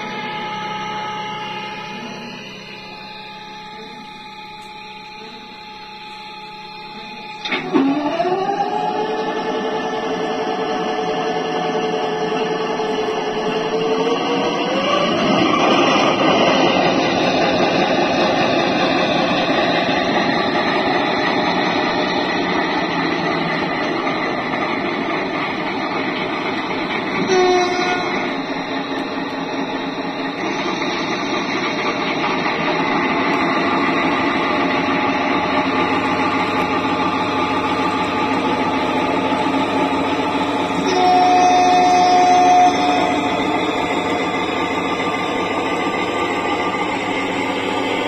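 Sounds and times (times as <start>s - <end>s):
model diesel locomotive engine: 0.0s - 48.0s
two-tone horn blast: 26.8s - 29.2s, 35.6s - 46.4s.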